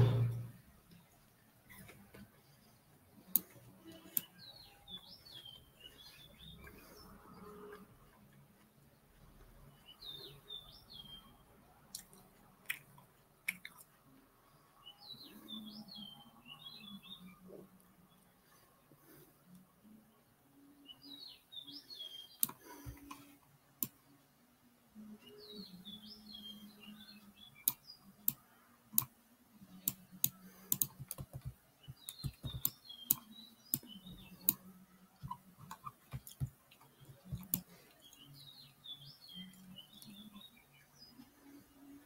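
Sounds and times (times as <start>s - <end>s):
small bird chirping: 3.2s - 7.8s, 14.8s - 18.3s, 25.0s - 42.0s
keyboard keys clicking: 30.2s - 33.2s.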